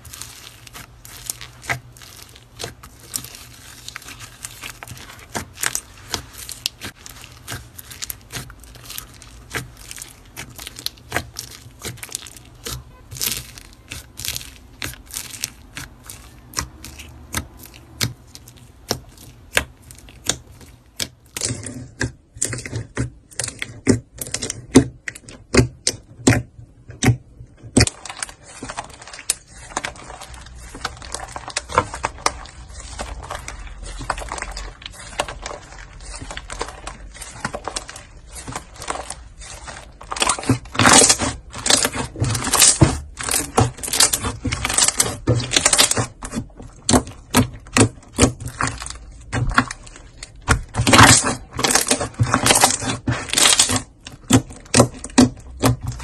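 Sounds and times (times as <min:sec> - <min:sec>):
bead slime crackling and clicking: 0:00.0 - 0:26.4.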